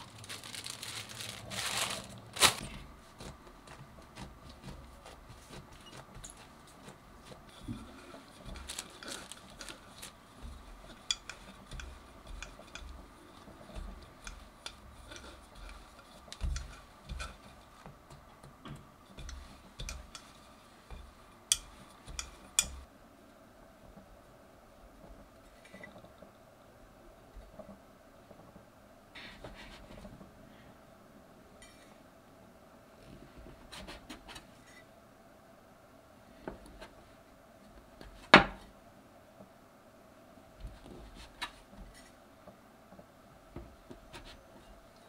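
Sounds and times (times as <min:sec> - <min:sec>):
plastic sheeting crinkling: 0:00.0 - 0:11.5
rolling pin thudding on dough: 0:10.4 - 0:22.8.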